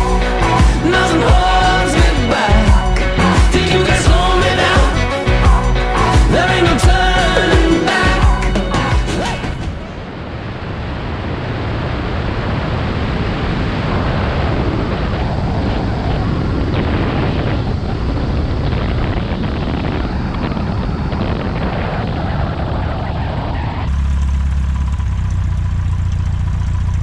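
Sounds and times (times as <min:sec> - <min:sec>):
airplane engine and propeller: 0:06.1 - 0:27.0
wind rushing over microphone: 0:09.2 - 0:23.9.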